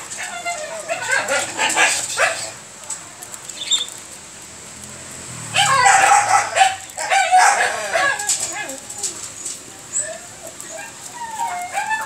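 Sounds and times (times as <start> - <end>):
puppies whining and yelping: 0.0 - 2.5, 5.6 - 12.0.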